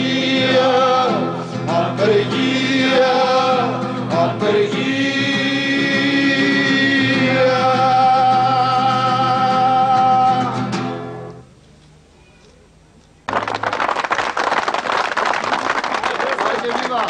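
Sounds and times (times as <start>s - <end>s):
men singing together: 0.0s - 10.6s
crowd clapping: 13.3s - 17.0s.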